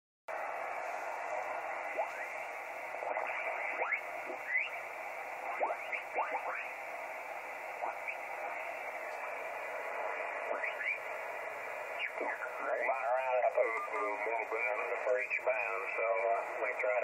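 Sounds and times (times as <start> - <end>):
gliding radio whistles: 0.3 - 12.9
radio band hiss: 0.3 - 17.0.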